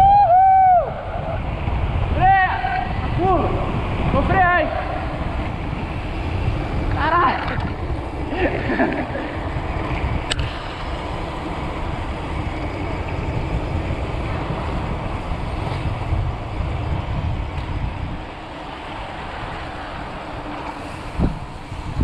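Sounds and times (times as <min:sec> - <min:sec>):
wind buffeting the microphone: 0:00.0 - 0:22.0
sharp click: 0:10.3 - 0:10.5.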